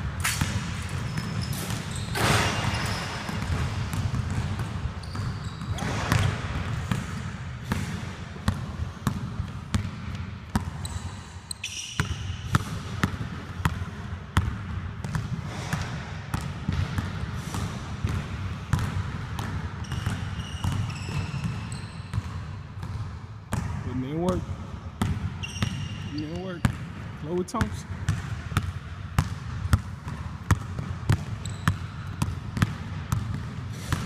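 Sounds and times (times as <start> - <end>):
basketball bouncing on hardwood: 0.3 - 10.8, 18.0 - 23.8, 28.1 - 34.0
short high squeaks: 1.0 - 3.3, 10.8 - 12.4, 25.4 - 26.2.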